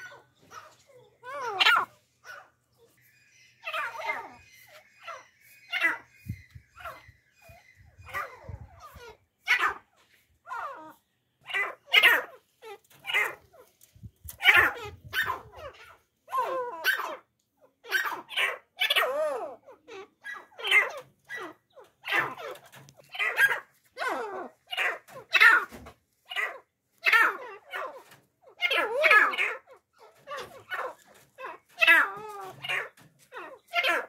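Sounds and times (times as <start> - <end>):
francolins giving harsh calls: 3.0 - 9.8.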